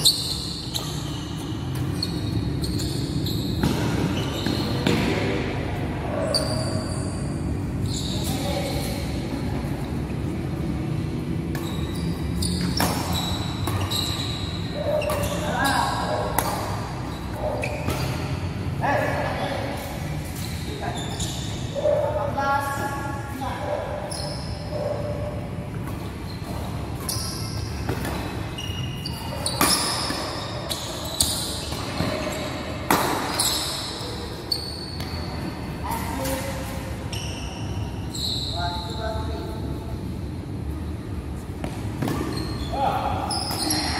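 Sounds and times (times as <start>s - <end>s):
shoes squeaking on floor: 0.0s - 5.1s, 6.1s - 9.9s, 11.4s - 18.5s, 19.4s - 22.0s, 23.9s - 25.1s, 25.7s - 39.6s, 41.4s - 43.9s
sports hall background noise: 0.0s - 43.9s
racket hitting shuttlecock: 12.6s - 14.2s, 14.9s - 16.9s, 25.7s - 28.5s, 29.3s - 30.6s, 31.2s - 33.8s.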